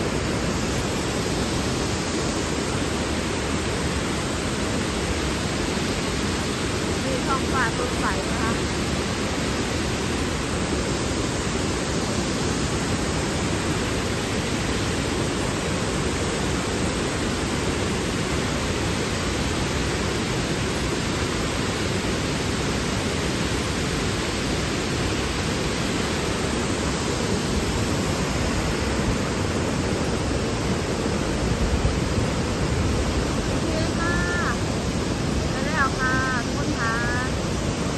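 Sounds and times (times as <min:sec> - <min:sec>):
waterfall rushing: 0:00.0 - 0:37.9.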